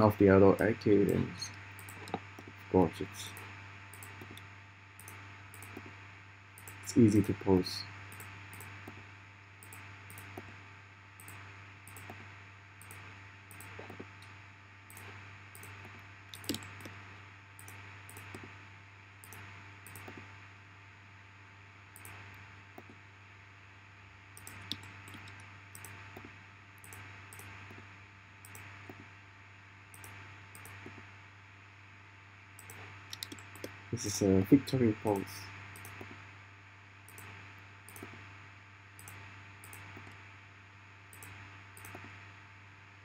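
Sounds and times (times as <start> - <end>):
steady low hum: 0.0 - 43.0
computer mouse and keyboard clicks: 1.0 - 2.6, 3.3 - 5.9, 11.2 - 14.3, 14.9 - 17.0, 17.6 - 18.5, 19.2 - 20.3, 24.4 - 27.8, 28.4 - 29.0, 30.0 - 31.0, 32.6 - 33.8, 35.8 - 36.2, 37.1 - 38.2, 39.0 - 40.2, 41.1 - 42.2.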